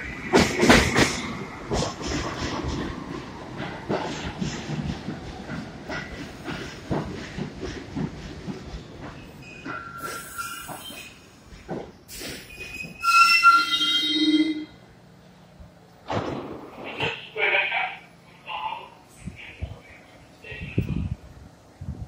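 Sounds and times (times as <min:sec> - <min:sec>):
train wheels clicking over rail joints: 0:00.0 - 0:13.2
train brakes squealing: 0:09.3 - 0:11.3, 0:12.1 - 0:14.7
short brake hisses: 0:10.0 - 0:11.2, 0:12.1 - 0:12.7.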